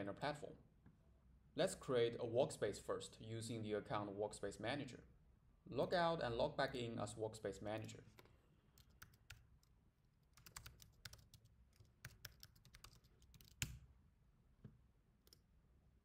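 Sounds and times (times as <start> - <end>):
computer keyboard typing: 8.8 - 9.7, 10.3 - 13.8.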